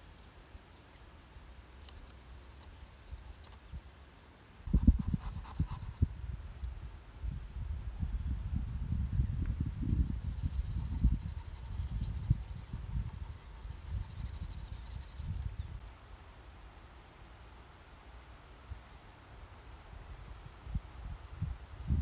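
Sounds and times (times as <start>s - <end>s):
insect trilling buzz: 9.8s - 15.6s.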